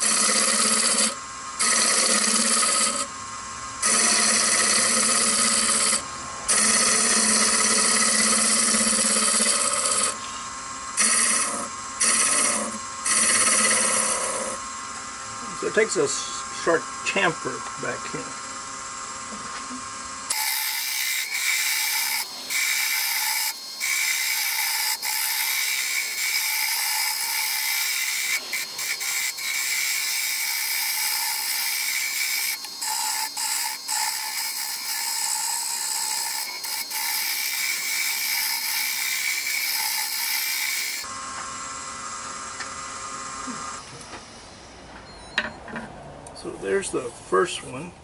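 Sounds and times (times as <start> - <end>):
tool scraping wood on lathe: 0.0 - 3.1, 3.8 - 10.2, 11.0 - 14.6, 20.3 - 41.1
lathe running: 0.0 - 10.2, 10.9 - 43.8.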